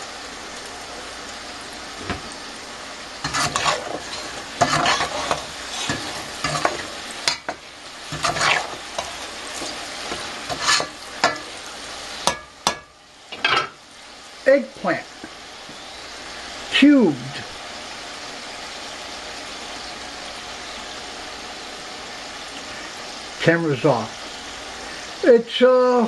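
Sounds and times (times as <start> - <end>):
food sizzling in deep oil: 0.0 - 26.0
utensil scraping against pot: 3.2 - 11.7.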